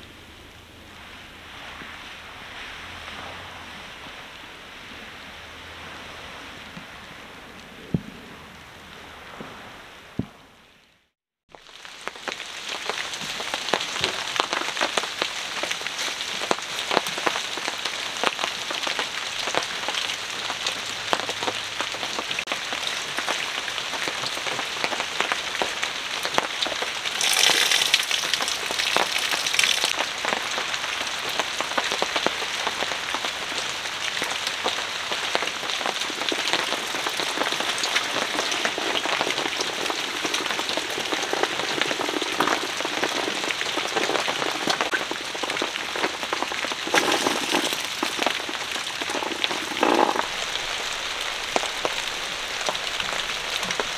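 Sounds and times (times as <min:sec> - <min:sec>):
rain pattering on fabric awning: 0:11.5 - 0:53.9.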